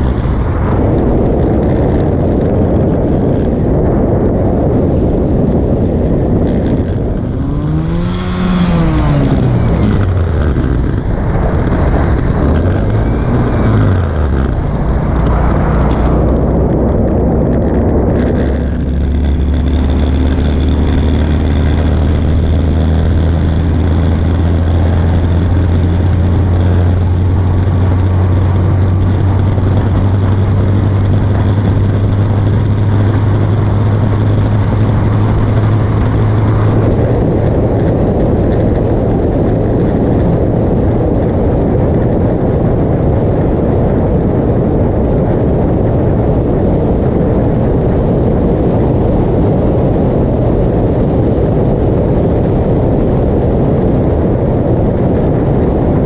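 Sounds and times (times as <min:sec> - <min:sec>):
motorcycle engine running: 0:00.0 - 0:56.0
wind rushing over microphone: 0:00.0 - 0:56.0.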